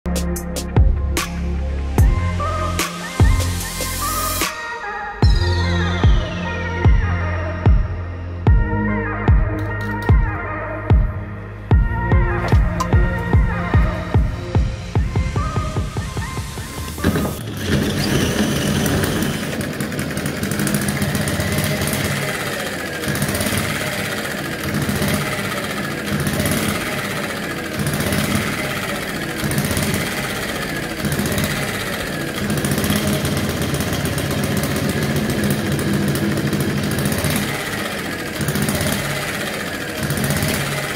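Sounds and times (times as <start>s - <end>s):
model engine running: 12.4s - 40.9s.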